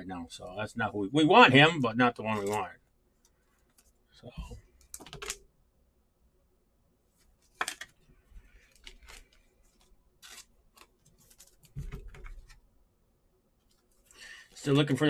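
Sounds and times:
cards rustling and clicking: 2.2s - 4.0s, 4.7s - 5.4s, 7.2s - 12.6s.

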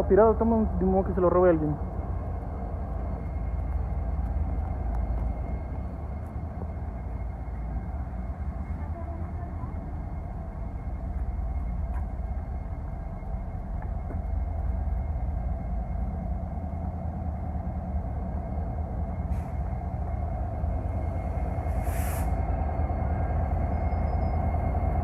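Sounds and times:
diesel locomotive rumble: 0.0s - 25.0s
short hiss: 21.8s - 22.4s.

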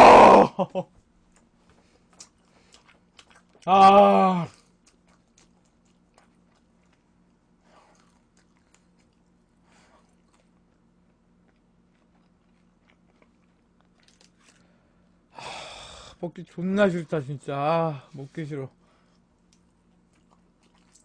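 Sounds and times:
faint low hum: 0.0s - 21.0s
faint breaths: 14.4s - 16.2s, 17.9s - 19.4s.

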